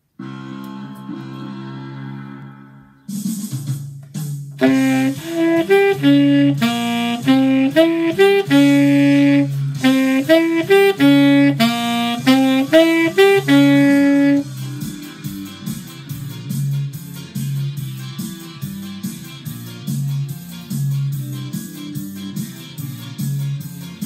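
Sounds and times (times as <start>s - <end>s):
backing music: 0.0s - 24.0s
saxophone playing: 0.2s - 3.0s, 4.6s - 14.7s.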